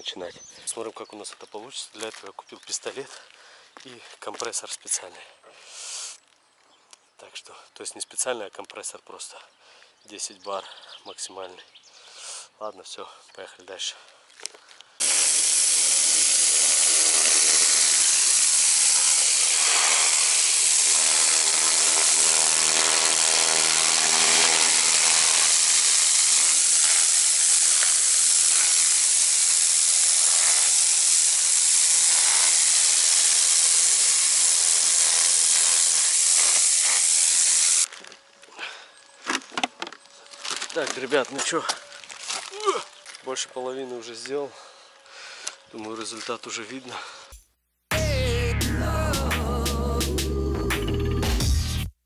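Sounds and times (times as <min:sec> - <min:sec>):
pressure washer water jet hissing: 0:15.0 - 0:37.9
pump motor humming: 0:15.0 - 0:37.9.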